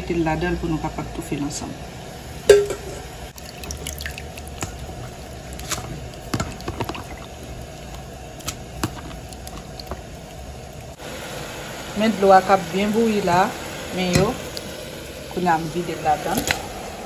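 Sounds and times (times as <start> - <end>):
small wet ticks and splashes: 3.3 - 11.0
water dripping and pouring: 3.3 - 11.1.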